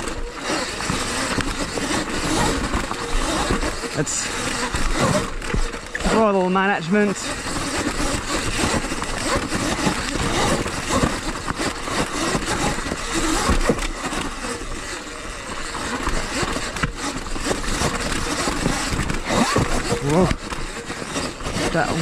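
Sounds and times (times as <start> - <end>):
bike chassis rattling: 0.0 - 22.0
tyres crunching over loose stones: 0.0 - 22.0.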